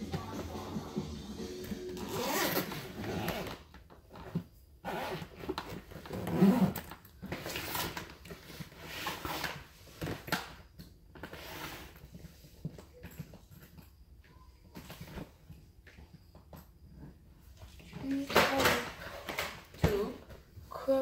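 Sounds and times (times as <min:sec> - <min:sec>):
backpack rustling and clicking: 0:02.0 - 0:13.9.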